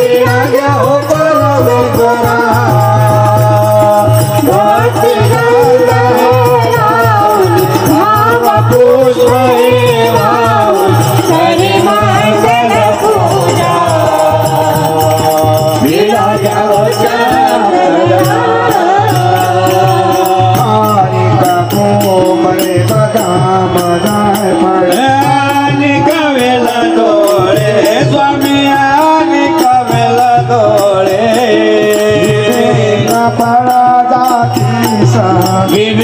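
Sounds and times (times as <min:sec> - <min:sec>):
harmonium: 0:00.0 - 0:36.0
person singing into microphone: 0:00.0 - 0:36.0
tabla: 0:00.0 - 0:36.0.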